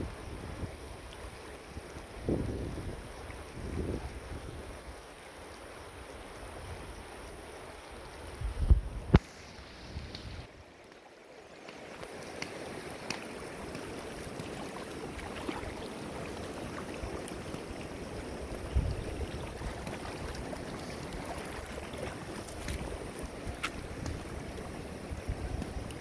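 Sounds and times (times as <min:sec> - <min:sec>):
water rippling over rocks: 0:09.0 - 0:26.0.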